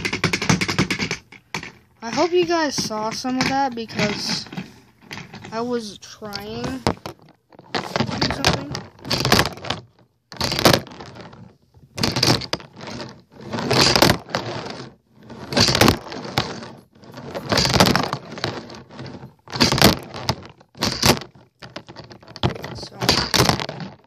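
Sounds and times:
handboard clattering on floor: 0.0s - 5.6s, 12.0s - 14.9s, 15.5s - 24.0s.

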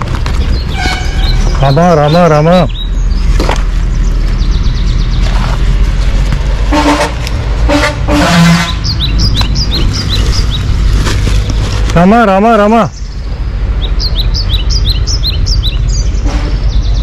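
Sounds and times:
bird chirping: 0.0s - 6.6s, 8.6s - 17.0s
low traffic rumble: 0.0s - 17.0s
vehicle horn beeps: 0.8s - 1.4s, 6.7s - 8.9s.

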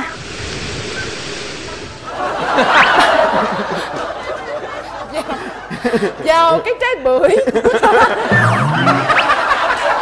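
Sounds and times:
studio audience laughing: 2.1s - 6.3s, 7.3s - 10.0s.

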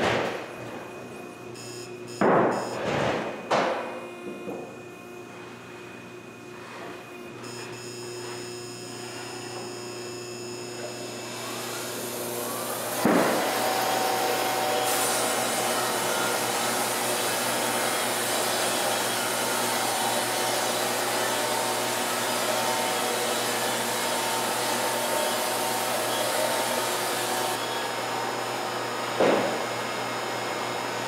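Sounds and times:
sawmill machinery whirring: 4.7s - 31.0s.

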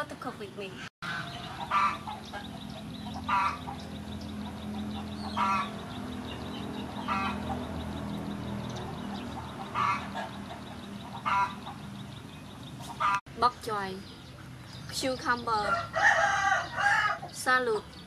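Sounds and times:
fowl calling: 1.0s - 3.9s, 4.7s - 5.9s, 6.9s - 7.6s, 8.8s - 11.9s, 12.8s - 13.2s.

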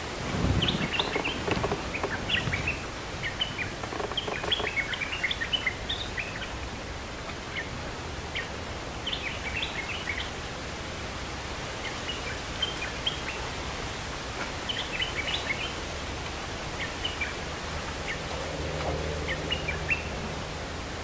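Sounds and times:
low rustling rumble: 0.0s - 4.7s
bulbuls chirping: 0.5s - 6.5s.

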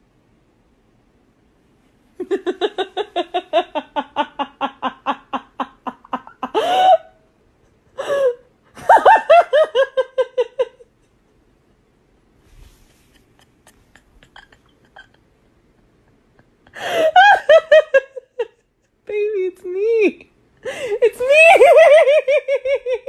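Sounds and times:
person laughing hard: 2.2s - 7.2s, 7.8s - 10.8s, 12.9s - 18.7s, 20.7s - 23.0s.

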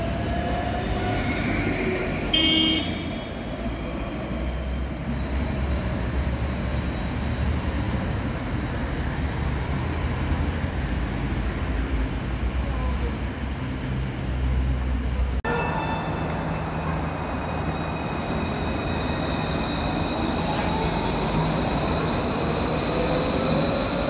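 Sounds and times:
tram whine: 0.0s - 24.0s
tram horn toot: 2.3s - 3.6s, 15.4s - 19.2s.

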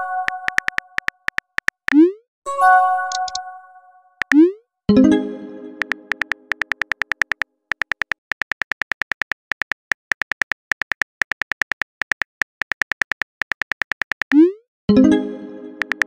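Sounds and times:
phone keyboard typing clicks: 0.2s - 2.0s, 3.1s - 3.4s, 4.2s - 4.5s, 5.8s - 14.5s, 15.8s - 16.0s
message received chime: 2.5s - 6.6s.

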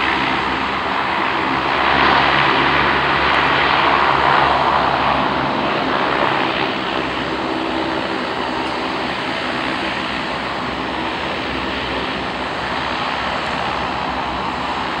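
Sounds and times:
turboprop aircraft taxiing: 0.0s - 15.0s.

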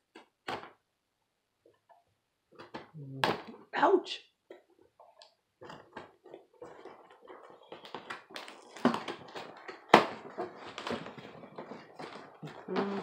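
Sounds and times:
hands tapping and rustling package: 4.5s - 13.0s.

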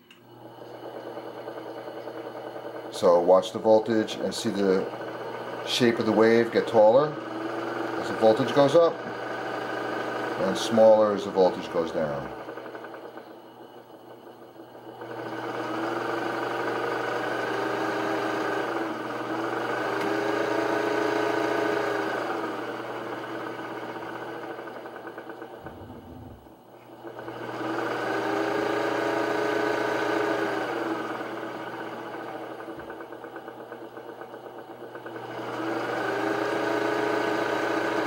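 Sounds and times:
sewing machine motor hum: 0.0s - 38.0s.

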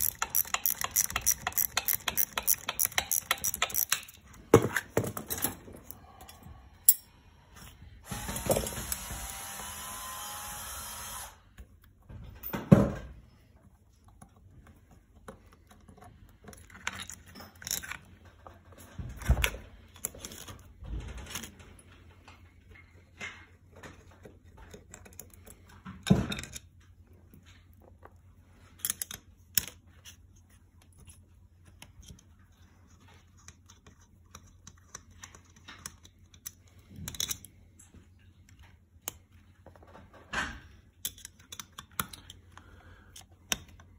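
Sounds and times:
clicks and rattles of wires: 13.9s - 43.9s.

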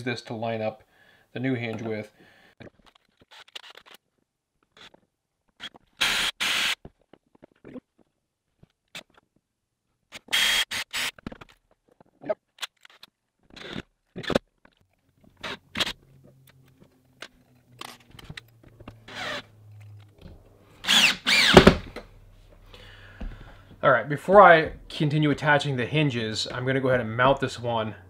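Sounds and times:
cordless drill driving screws: 5.6s - 6.8s, 10.1s - 11.2s, 19.1s - 19.4s, 20.8s - 22.0s.

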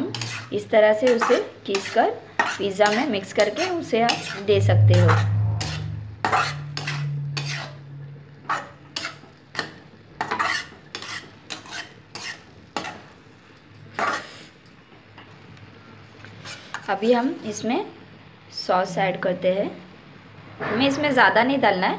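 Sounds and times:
spoon scraping metal wok: 0.0s - 13.2s, 13.9s - 14.6s, 16.3s - 17.0s.

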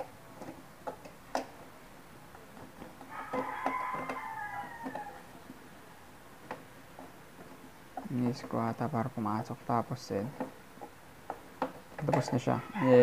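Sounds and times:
faint rooster crowing: 3.0s - 5.4s, 12.4s - 13.0s.

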